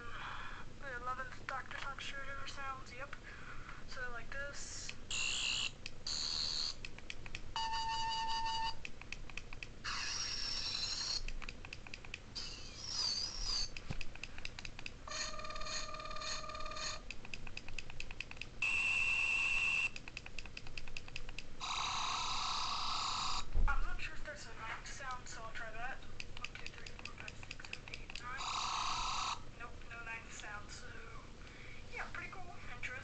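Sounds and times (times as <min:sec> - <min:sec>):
high-pitched electronic buzzing tones: 0:05.1 - 0:06.8, 0:07.6 - 0:08.8, 0:09.8 - 0:11.3, 0:12.4 - 0:13.8, 0:15.1 - 0:17.0, 0:18.6 - 0:20.0, 0:21.6 - 0:23.5, 0:28.4 - 0:29.4
quick clicks: 0:08.8 - 0:15.0, 0:16.8 - 0:21.5, 0:26.2 - 0:28.4.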